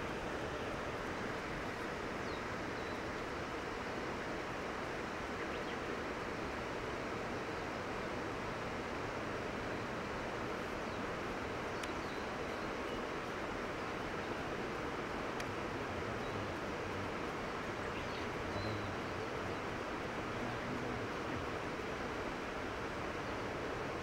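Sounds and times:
steady outdoor hiss: 0:00.0 - 0:24.0
faint clicks: 0:11.7 - 0:12.1, 0:15.3 - 0:15.6.

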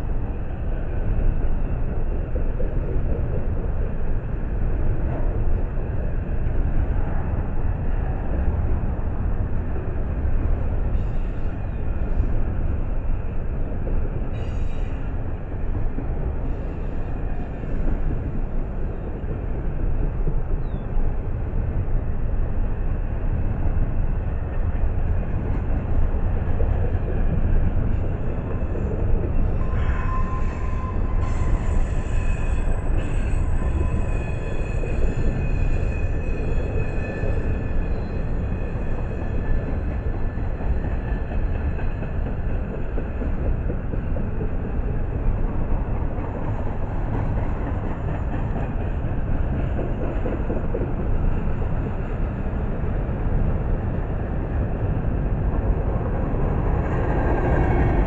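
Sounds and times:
freight train wheels rumbling: 0:00.0 - 0:58.0
high-pitched wheel squeal: 0:29.5 - 0:39.0.

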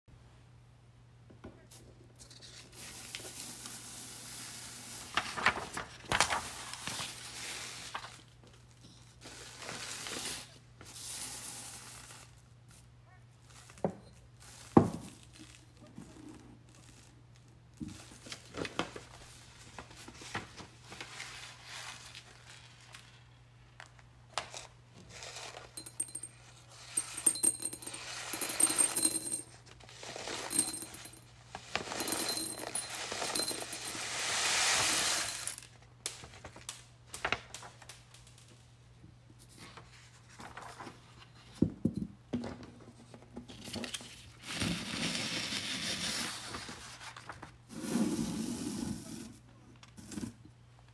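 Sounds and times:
paper rustling: 0:05.1 - 0:08.6, 0:39.6 - 0:41.2
beads rattling against glass: 0:25.8 - 0:35.7.

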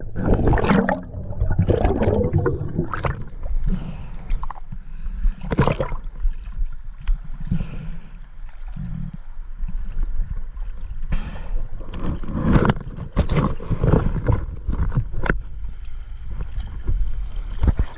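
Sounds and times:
water slapping and splashing: 0:00.0 - 0:03.6.

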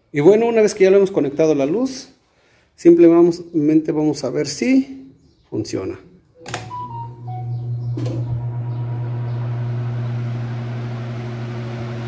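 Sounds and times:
fan motor humming: 0:06.5 - 0:12.0.

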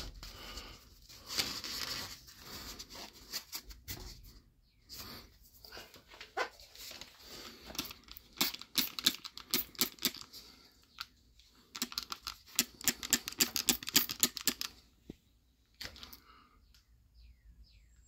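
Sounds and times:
spray bottle spritzing: 0:07.8 - 0:10.2.

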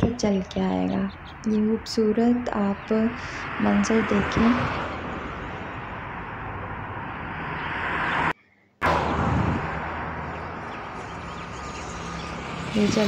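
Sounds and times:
aircraft engines rushing: 0:02.8 - 0:13.0.

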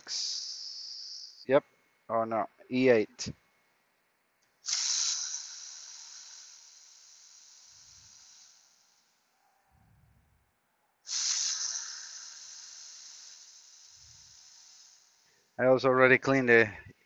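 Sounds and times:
air ratchet hissing: 0:00.0 - 0:01.5, 0:04.6 - 0:09.3, 0:11.1 - 0:15.6.

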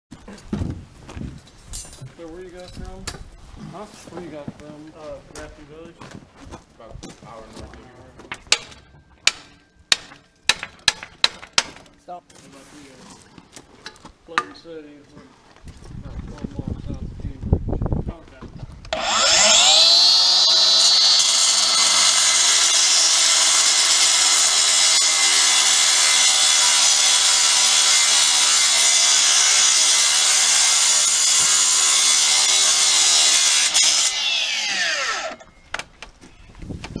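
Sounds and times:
cut-off saw cutting metal: 0:18.9 - 0:35.5
saw blade winding down: 0:18.9 - 0:35.5.

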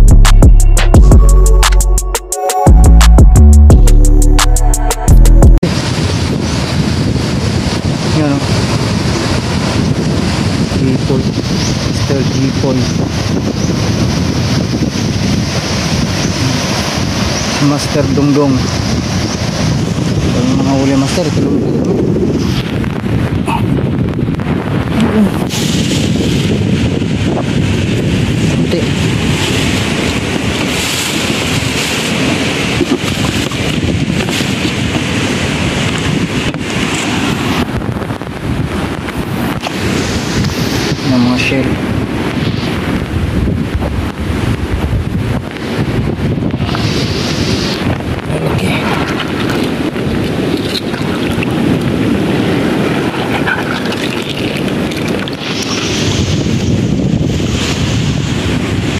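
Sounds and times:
strong wind buffeting microphone: 0:05.2 - 0:58.9
water sloshing and splashing: 0:48.8 - 0:52.0, 0:52.7 - 0:56.2.

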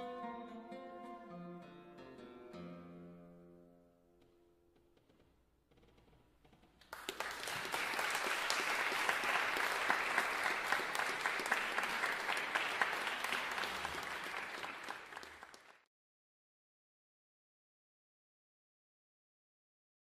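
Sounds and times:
audience applauding: 0:06.8 - 0:15.9.

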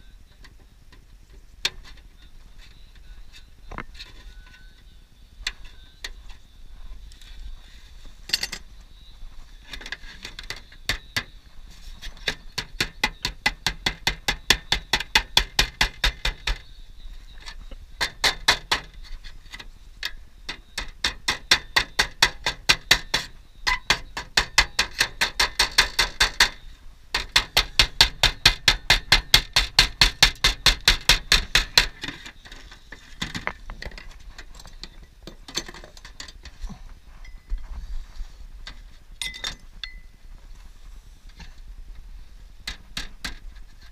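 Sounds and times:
hammer tapping on metal sheet: 0:12.3 - 0:16.6, 0:18.0 - 0:19.0, 0:20.5 - 0:26.6, 0:27.2 - 0:32.0.

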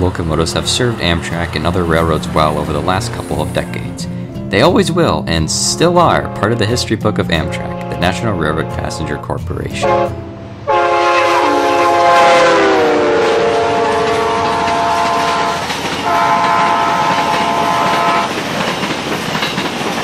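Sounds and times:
train cars rumbling on rails: 0:00.0 - 0:20.0
locomotive air horn blowing: 0:06.1 - 0:06.7, 0:07.4 - 0:09.1, 0:09.8 - 0:18.3.

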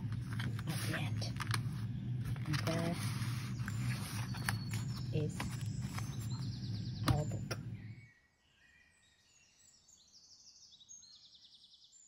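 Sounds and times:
hands handling paper journal: 0:00.0 - 0:07.5
low room hum: 0:00.0 - 0:08.1
birdsong chirps and trills: 0:00.1 - 0:12.0.

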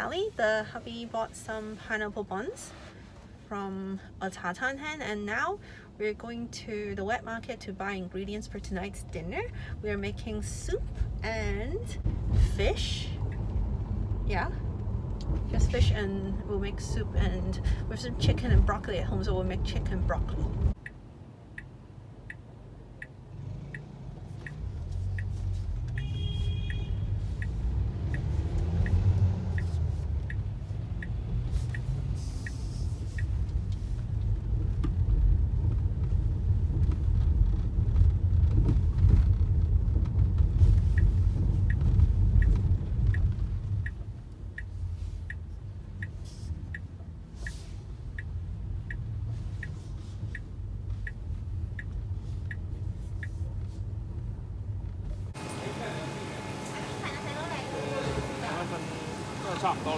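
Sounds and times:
car road and engine rumble: 0:00.0 - 0:59.9
steady light ticking: 0:20.2 - 0:25.3, 0:25.9 - 0:34.4, 0:40.1 - 0:54.1.

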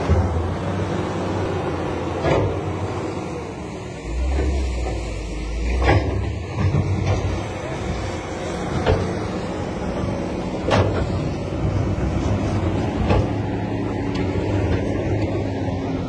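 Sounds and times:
diesel engine rumble: 0:00.0 - 0:16.0.

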